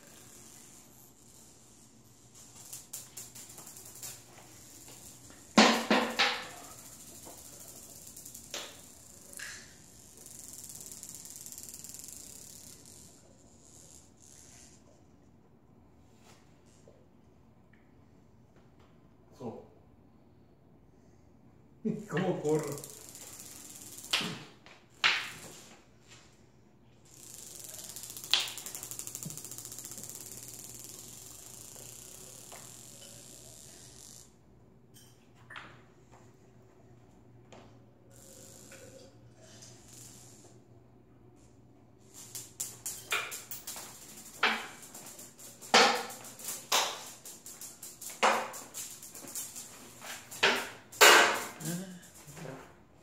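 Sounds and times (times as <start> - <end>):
marble rolling on tile: 0.0 - 15.2, 22.4 - 26.3, 27.0 - 36.2, 37.4 - 40.7, 42.0 - 52.7
marble clacking on tile floor: 0.1 - 14.8, 22.4 - 25.7, 27.1 - 34.4, 38.2 - 40.6, 42.1 - 52.5.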